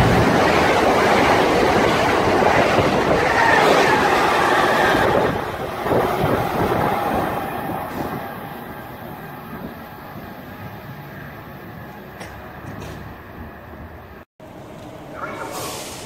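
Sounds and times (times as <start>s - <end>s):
high-speed train passing: 0.0s - 16.0s
train rumbling in station: 0.0s - 16.0s.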